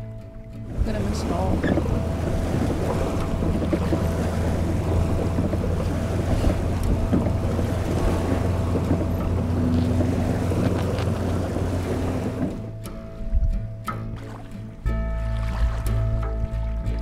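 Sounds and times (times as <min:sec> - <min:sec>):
wind buffeting microphone: 0:00.6 - 0:13.8.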